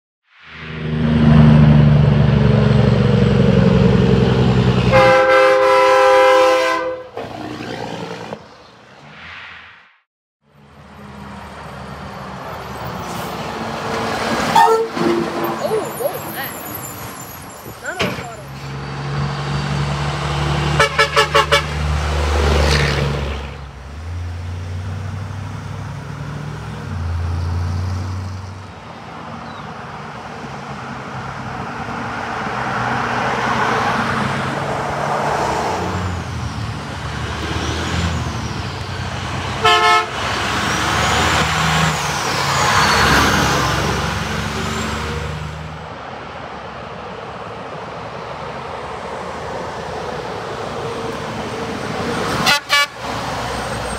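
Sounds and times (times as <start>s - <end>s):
passing traffic: 0.2s - 53.9s
truck horn toots: 4.8s - 7.2s, 14.5s - 15.7s, 20.7s - 21.9s, 39.6s - 40.4s, 52.4s - 53.1s.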